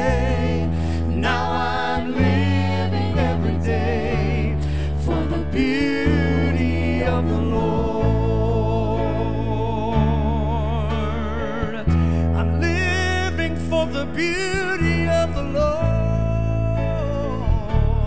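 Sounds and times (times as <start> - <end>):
singers holding long notes: 0.0 - 10.6
worship band playing: 0.0 - 18.0.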